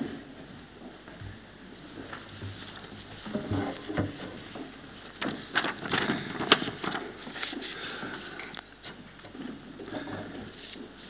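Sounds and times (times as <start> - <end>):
paper rustling: 2.0 - 9.6, 10.4 - 11.0.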